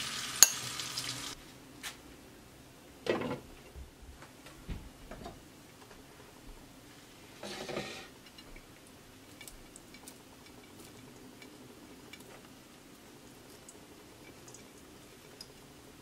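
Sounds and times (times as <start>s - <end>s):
eggs sizzling in a frying pan: 0.0s - 1.4s, 6.9s - 16.0s
small clicks and crackles: 8.3s - 15.7s.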